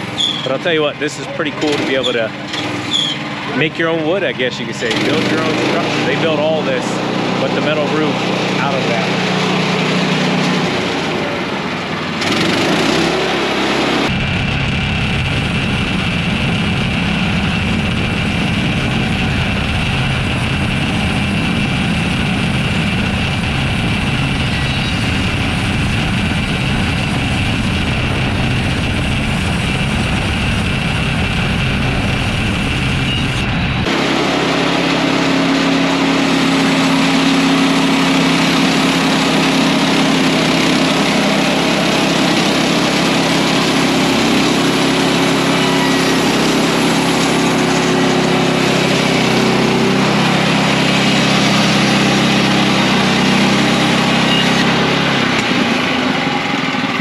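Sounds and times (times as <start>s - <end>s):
bandsaw sawmill engine running: 0.0s - 57.0s
steady low hum: 13.8s - 34.6s.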